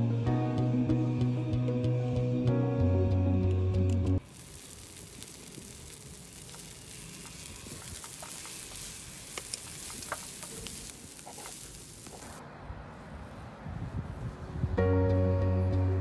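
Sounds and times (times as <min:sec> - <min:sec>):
hot oil sizzling: 0:04.2 - 0:12.4
oil pops and clicks: 0:06.5 - 0:10.8.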